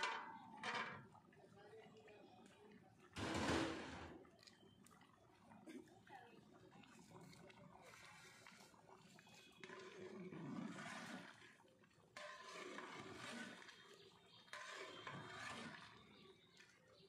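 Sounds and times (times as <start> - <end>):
metal ladle stirring a pot: 0.0 - 1.2, 3.2 - 4.3, 7.1 - 16.8.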